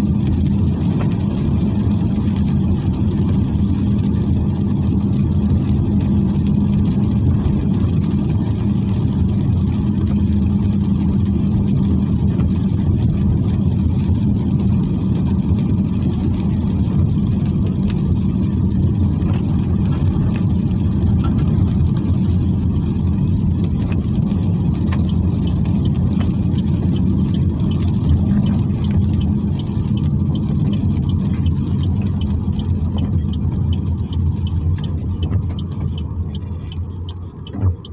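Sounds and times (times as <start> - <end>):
car engine and tyres drone: 0.0 - 37.9
hiss of wet road: 8.6 - 9.0, 27.1 - 28.5, 34.2 - 34.9.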